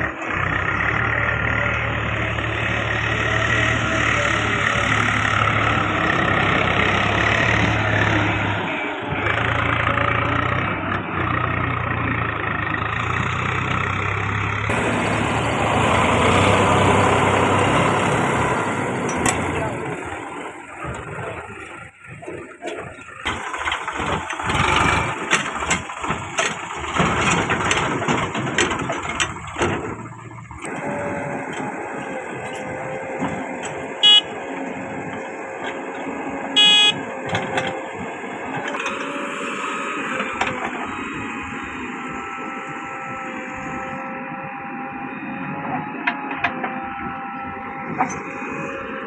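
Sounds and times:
tractor engine clattering: 0.0s - 43.2s
backhoe loader engine running: 0.0s - 49.0s
vehicle horn beeps: 34.0s - 34.4s, 36.6s - 37.1s.

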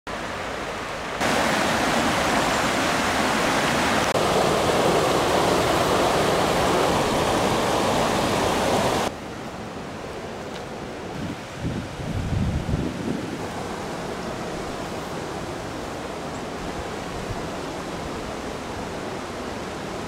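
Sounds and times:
river rushing over rock ledge: 0.1s - 20.0s.

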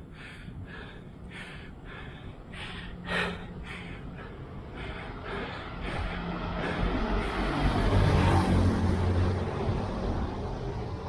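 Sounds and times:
person panting hard: 0.0s - 8.4s.

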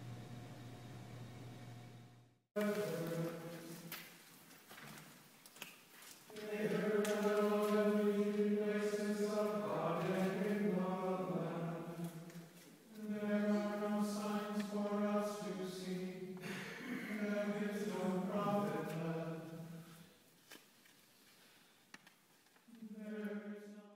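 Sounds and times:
voices chanting long notes: 6.4s - 12.2s.

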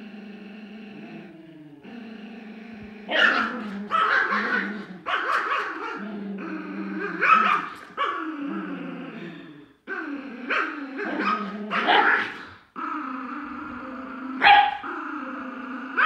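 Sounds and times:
dogs growling: 0.0s - 16.0s
dogs barking sharply: 3.1s - 6.0s, 14.4s - 14.9s.

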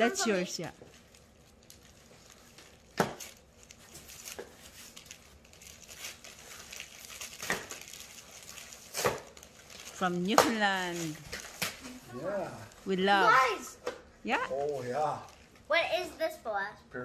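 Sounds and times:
cardboard crinkling and rustling: 0.3s - 13.5s.

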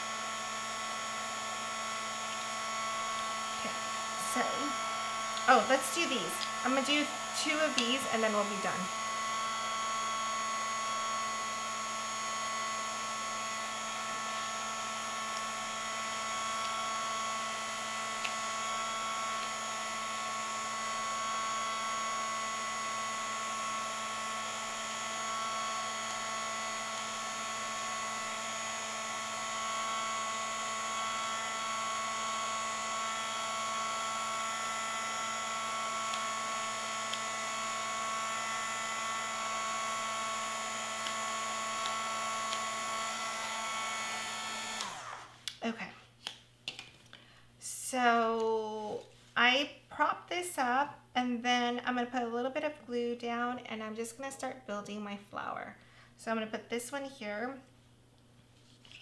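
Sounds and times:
heat tool motor whine: 0.0s - 45.4s.

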